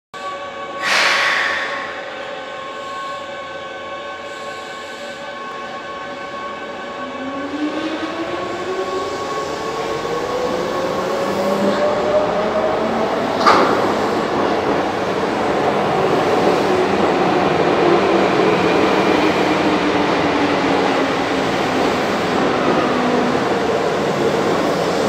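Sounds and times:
air hiss burst: 0.8 - 3.1.

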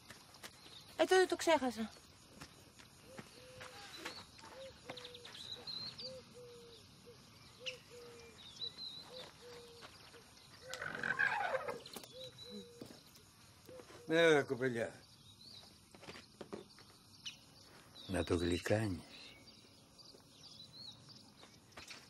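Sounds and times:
loud falling animal call: 10.6 - 12.0.

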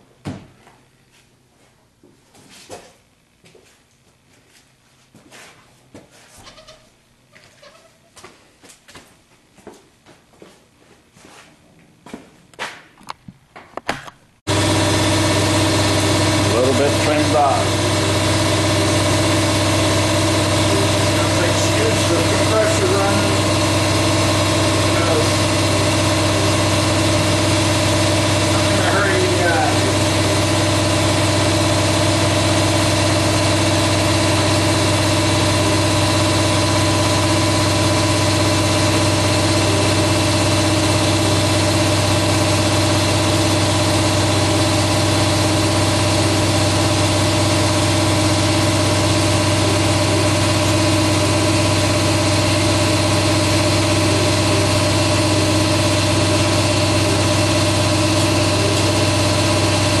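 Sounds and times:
air compressor running: 14.5 - 60.0.

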